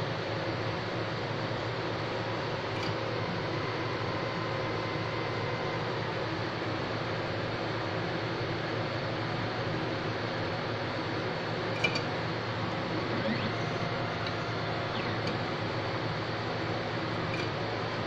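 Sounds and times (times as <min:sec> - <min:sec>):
tracer motor whirring: 0:12.6 - 0:17.6.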